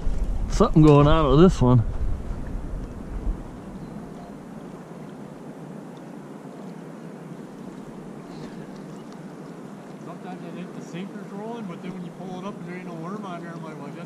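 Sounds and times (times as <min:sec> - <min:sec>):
low bump: 0:00.0 - 0:03.8.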